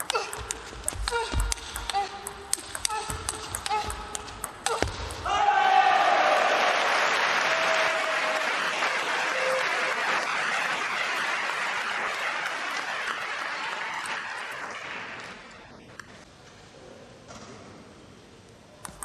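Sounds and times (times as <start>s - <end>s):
crowd applauding: 5.6s - 15.6s.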